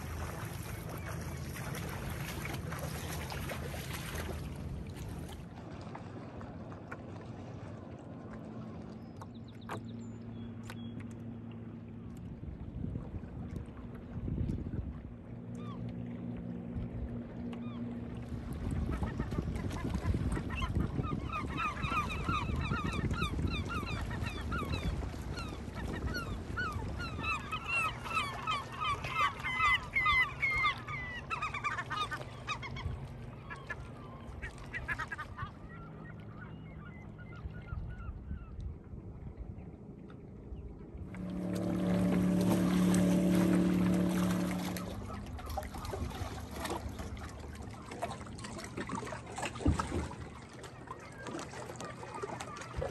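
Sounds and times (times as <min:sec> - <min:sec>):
gulls squawking: 0:18.8 - 0:38.3, 0:41.1 - 0:49.2.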